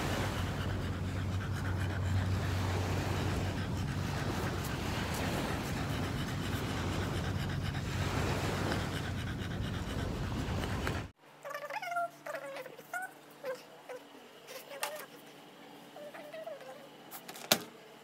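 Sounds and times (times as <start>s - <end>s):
dog panting: 0.0s - 11.2s
wind and sea rushing: 0.0s - 11.2s.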